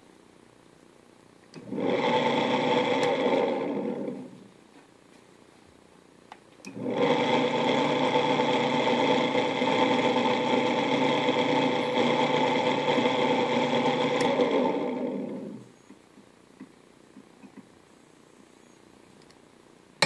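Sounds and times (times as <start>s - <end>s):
drill press motor humming: 1.6s - 4.4s, 6.7s - 15.7s.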